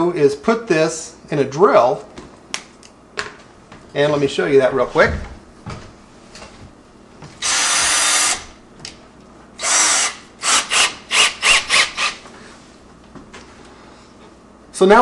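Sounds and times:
cordless drill bursts: 0:07.4 - 0:08.6, 0:09.6 - 0:12.2.

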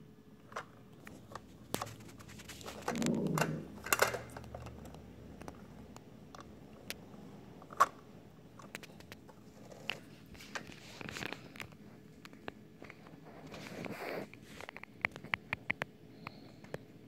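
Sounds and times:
scraping rustle: 0:01.1 - 0:03.8
plastic toy clicks and knocks: 0:02.8 - 0:04.7.

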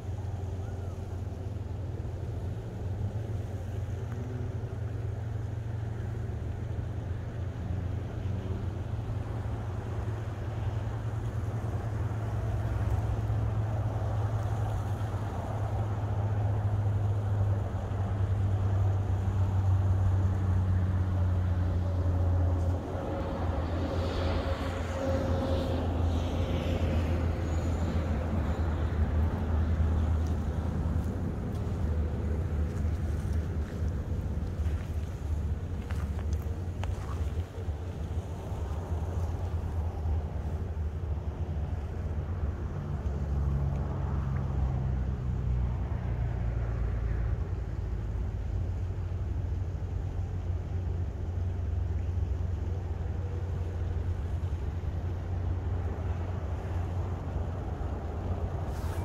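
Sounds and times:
low vehicle rumble: 0:00.0 - 0:59.0
faint high sliding sounds: 0:58.6 - 0:59.0.

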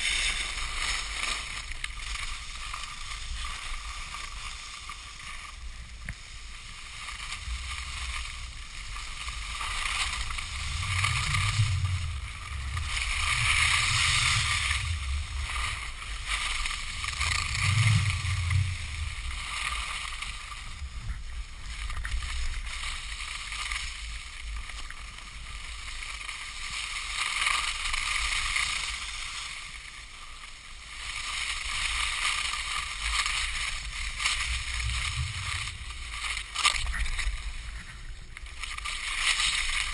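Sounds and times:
skis sliding over snow: 0:00.0 - 0:39.9
wind buffeting microphone: 0:10.4 - 0:19.4.

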